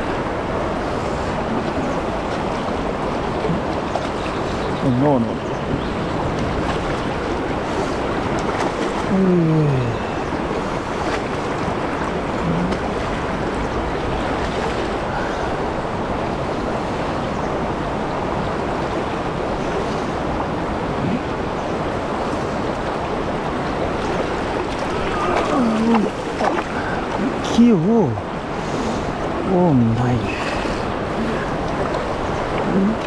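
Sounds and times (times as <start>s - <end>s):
river water rushing: 0.0s - 33.0s.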